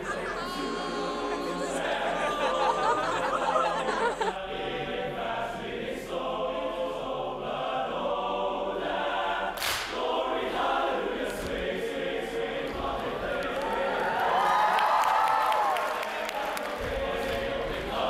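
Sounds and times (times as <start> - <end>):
male choir singing: 0.0 - 18.0
sharp clap-like hit: 9.6 - 10.0.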